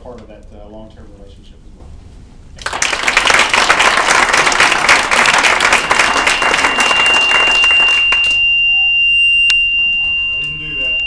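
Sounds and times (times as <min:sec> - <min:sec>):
audience applauding: 0:02.6 - 0:08.4
steady high-pitched tone: 0:05.4 - 0:11.0.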